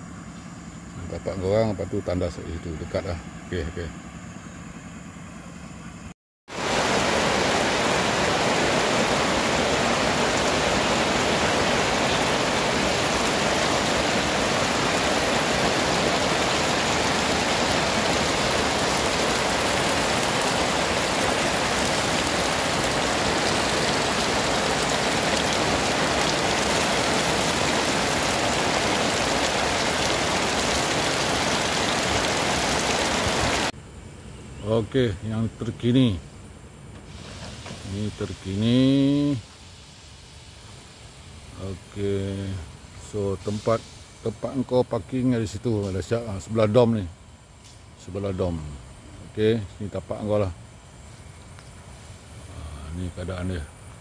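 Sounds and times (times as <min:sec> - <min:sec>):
heavy rain: 0:06.5 - 0:33.7.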